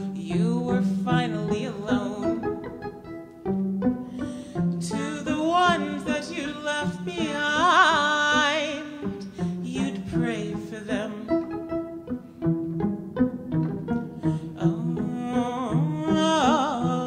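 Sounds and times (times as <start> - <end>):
woman singing with vibrato: 0.0 - 2.7, 4.2 - 11.6, 14.2 - 17.0
violin plucked pizzicato: 0.0 - 17.0.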